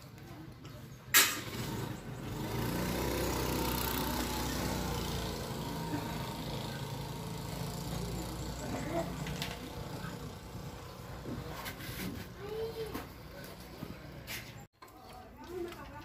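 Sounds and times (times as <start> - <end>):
engine running with hiss: 1.2 - 11.8.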